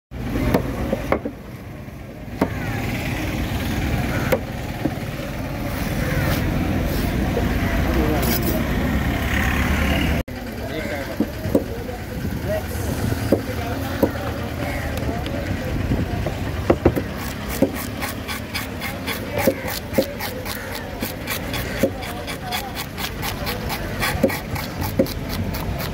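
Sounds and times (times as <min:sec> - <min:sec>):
low outdoor rumble: 0:00.2 - 0:25.9
fish scaler scraping scales: 0:17.0 - 0:25.9.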